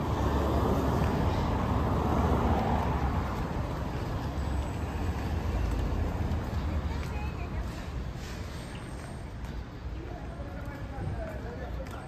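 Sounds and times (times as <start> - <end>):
car passing: 0.0 - 9.2
city traffic rumble: 0.0 - 12.0.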